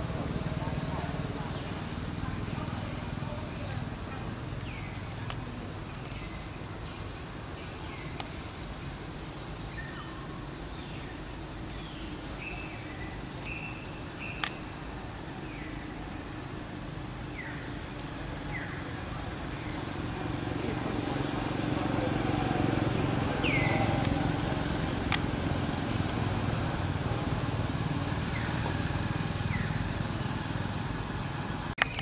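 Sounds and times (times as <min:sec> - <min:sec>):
birds whistling: 0:22.5 - 0:24.4, 0:26.8 - 0:30.4.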